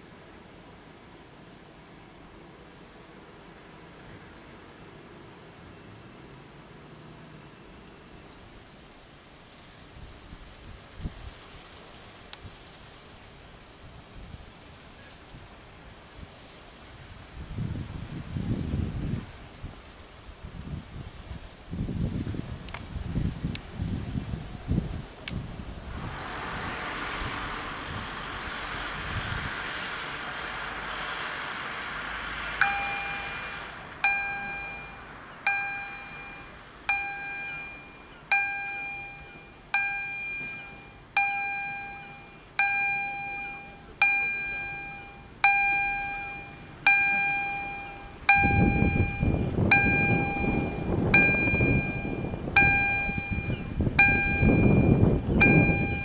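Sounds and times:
broad low rushing noise: 21.7 - 35.5, 47.6 - 56.0
level-crossing warning bell: 31.9 - 56.0.

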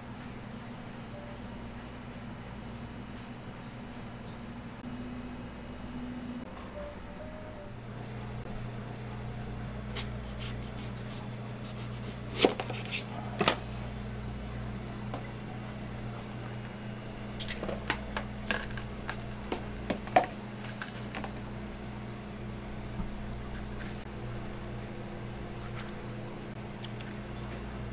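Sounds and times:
low appliance hum: 0.0 - 27.9
knife cutting a melon: 9.9 - 13.1.

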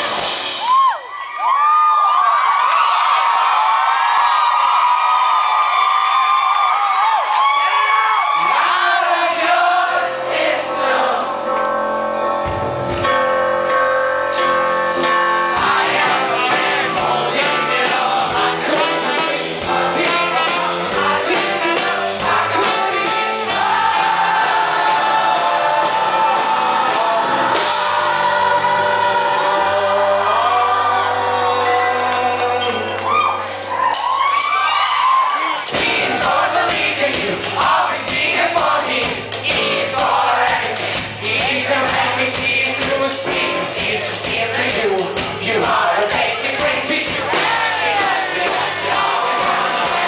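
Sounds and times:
live rock band: 0.0 - 1.0, 9.4 - 33.2, 33.8 - 50.0
man singing: 16.2 - 23.6, 25.6 - 28.5, 29.2 - 33.0, 40.6 - 50.0.

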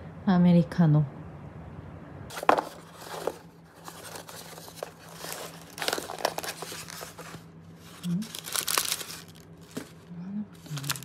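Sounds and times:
paper box being opened: 2.3 - 11.0
tissue paper crinkling: 2.3 - 11.0.

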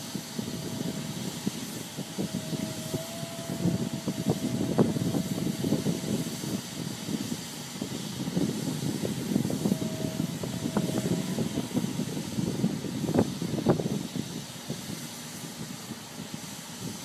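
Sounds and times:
high whine: 0.0 - 14.5
excavator engine running: 0.0 - 16.8.

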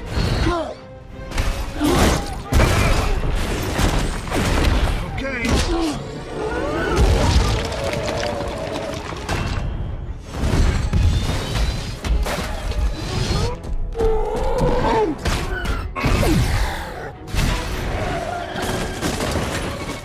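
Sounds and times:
film score music: 0.0 - 20.0
debris shattering: 7.0 - 12.6.

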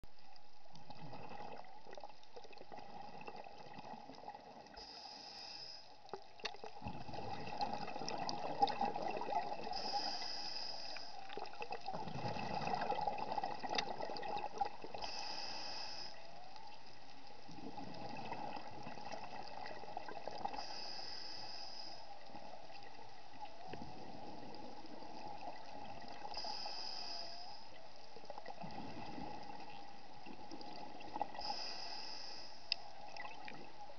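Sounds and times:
regulator inhale hiss: 4.7 - 6.1, 9.6 - 11.4, 14.9 - 16.5, 20.5 - 22.4, 26.2 - 27.8, 31.2 - 33.0
exhaled bubbles rushing: 6.6 - 9.7, 11.4 - 15.0, 17.5 - 20.6.

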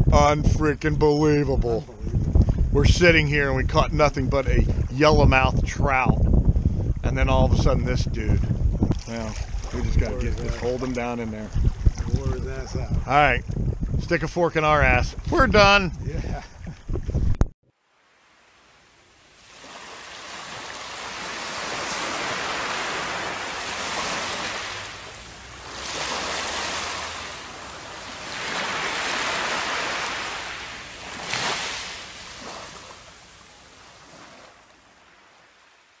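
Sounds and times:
waves washing onto shore: 9.0 - 12.5, 17.9 - 36.0.

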